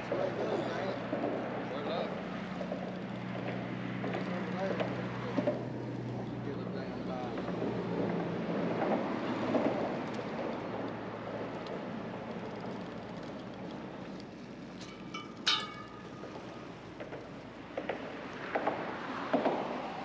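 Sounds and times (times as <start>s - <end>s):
sharp metallic clink: 14.8s - 16.5s.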